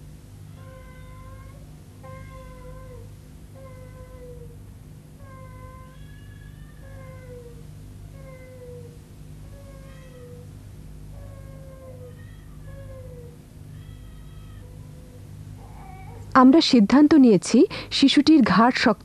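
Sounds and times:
steady low hum: 0.0 - 19.0
infant crying: 0.6 - 4.6, 5.2 - 7.6, 11.2 - 16.2.

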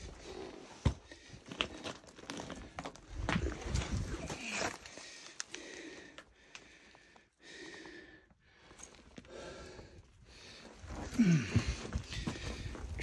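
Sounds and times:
man breathing hard: 4.3 - 13.0.

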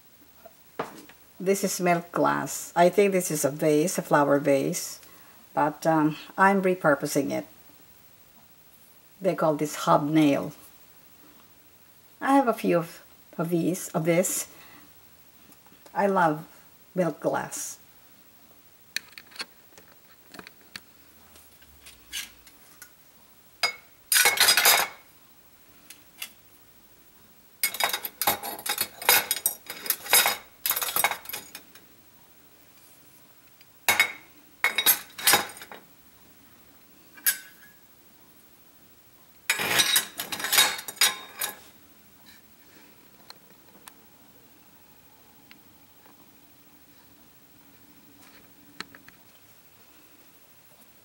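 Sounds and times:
metal utensils clinking in ceramic crock: 23.6 - 25.0, 27.6 - 31.6, 33.9 - 35.8, 37.2 - 37.7, 39.5 - 41.6.

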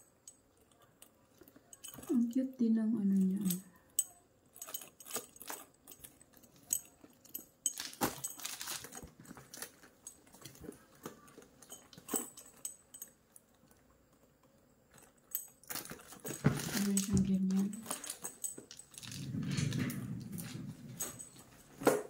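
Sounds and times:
handbag metal fittings clinking: 1.6 - 13.2, 14.9 - 21.5.

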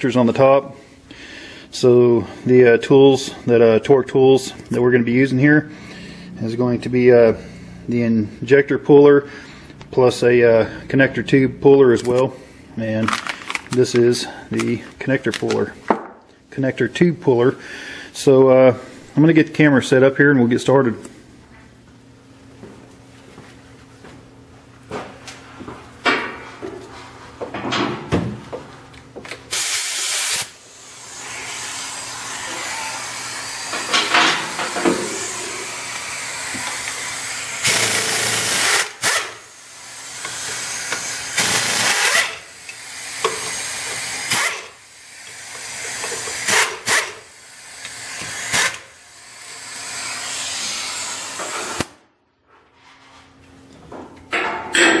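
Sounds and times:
air ratchet running: 29.5 - 51.9
exhaust air hissing: 29.5 - 52.0.

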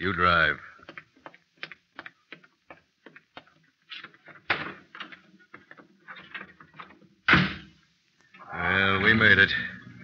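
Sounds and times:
footsteps: 0.7 - 7.1.

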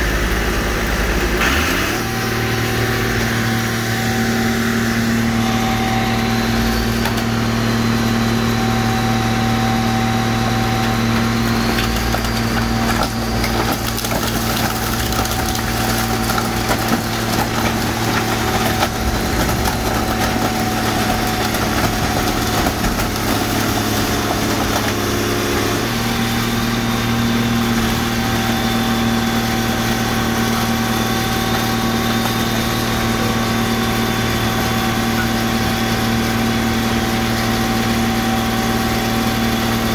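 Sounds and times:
car crusher engine and hydraulic pump: 0.0 - 39.9
metal body crumpling: 13.6 - 24.9.

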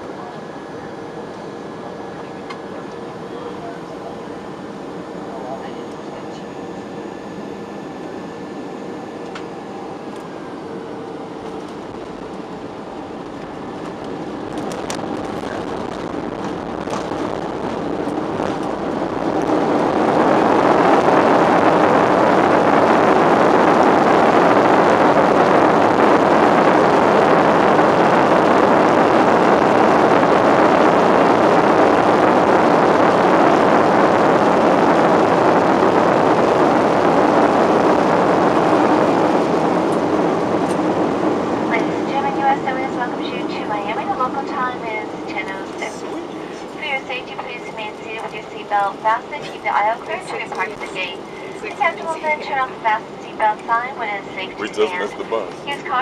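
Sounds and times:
jet engines roaring in cabin: 0.0 - 56.0.

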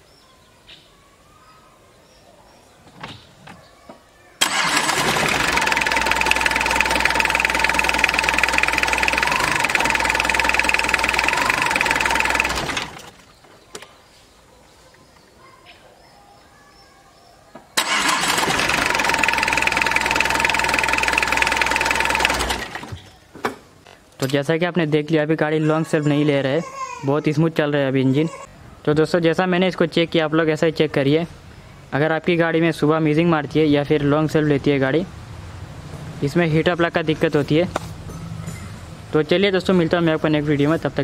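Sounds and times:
diesel engine starting and running: 4.4 - 13.2, 17.8 - 23.1.

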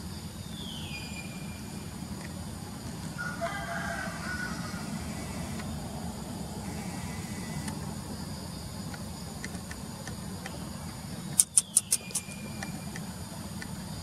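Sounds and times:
high insect drone: 0.0 - 14.0
steady low hum: 0.0 - 14.0
sharp high clicks: 11.3 - 13.7.

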